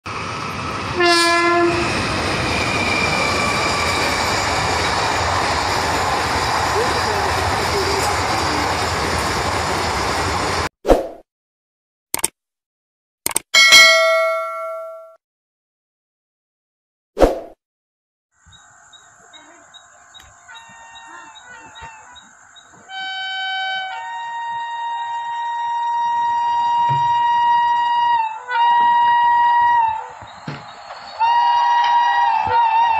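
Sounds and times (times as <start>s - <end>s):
passing train rumble and clatter: 0.0s - 10.7s, 25.9s - 32.9s
train horn blast: 1.0s - 1.9s, 22.9s - 30.2s, 31.2s - 32.9s
thin high tone: 13.6s - 15.2s.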